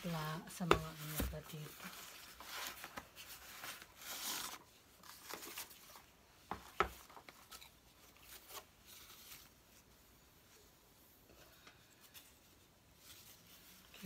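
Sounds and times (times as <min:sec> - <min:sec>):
cardboard and paper rustling: 0:00.0 - 0:10.0, 0:11.8 - 0:14.0.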